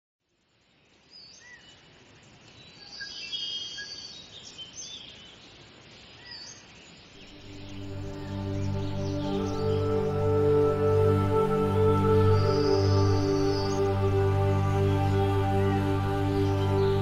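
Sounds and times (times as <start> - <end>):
outdoor background hiss: 0.2 - 17.0
birds chirping: 0.9 - 17.0
soft sustained music: 7.2 - 17.0.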